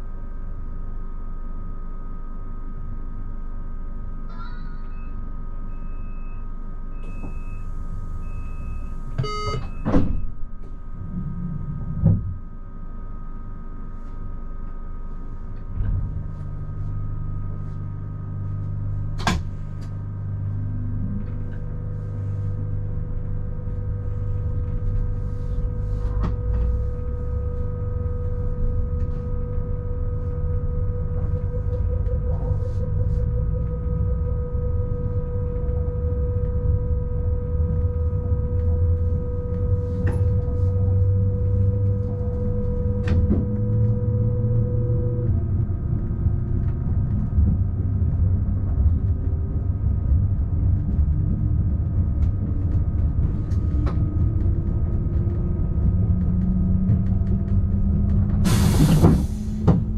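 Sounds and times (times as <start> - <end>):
low rumble: 0.0 - 59.9
steady electrical hum: 0.0 - 59.9
short beeps: 4.8 - 10.3
doors shutting: 9.2 - 10.4, 58.4 - 59.9.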